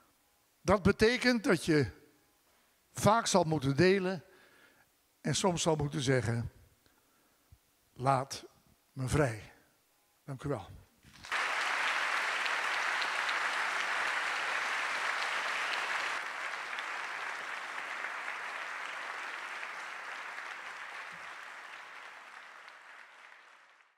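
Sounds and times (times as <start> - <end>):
audience applauding: 11.1 - 23.9.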